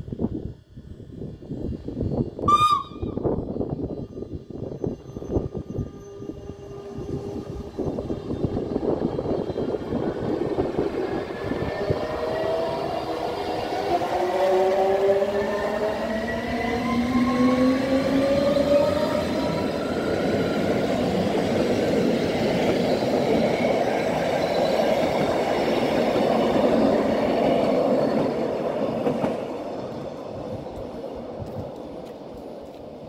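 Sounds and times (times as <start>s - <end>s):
faint high wheel squeal: 2.2s - 8.7s.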